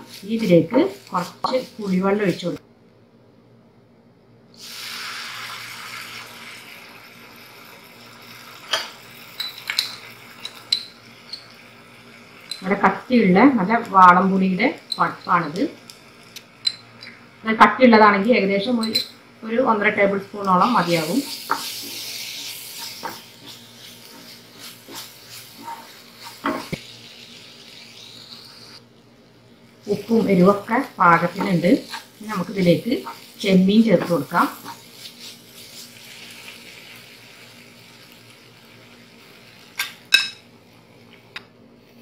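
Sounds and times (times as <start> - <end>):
pulp sizzling in hot oil: 0.0 - 2.6, 4.6 - 41.3
spatula scraping a pan: 0.0 - 2.6, 20.7 - 26.9, 29.9 - 36.2.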